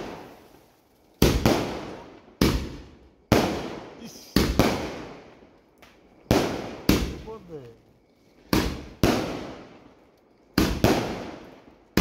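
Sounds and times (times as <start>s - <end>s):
firecracker bangs: 0.0s - 0.5s, 1.2s - 5.2s, 6.3s - 7.6s, 8.5s - 9.7s, 10.5s - 12.0s.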